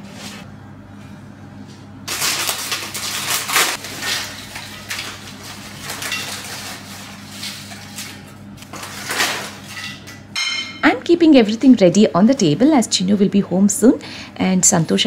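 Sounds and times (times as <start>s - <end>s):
crisp snacks falling onto ceramic platter: 2.1s - 7.0s
plastic snack bag crinkling: 2.1s - 9.7s.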